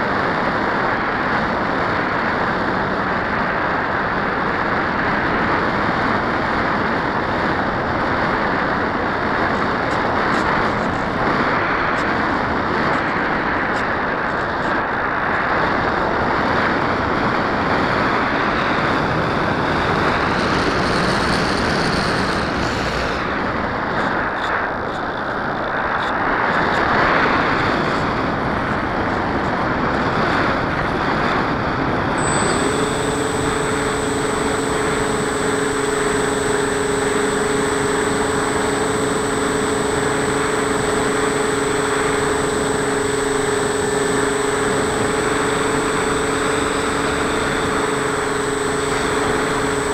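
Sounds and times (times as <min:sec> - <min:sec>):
rush of air and propeller: 0:00.0 - 0:49.9
electric motor whine: 0:17.9 - 0:23.4, 0:32.0 - 0:49.9.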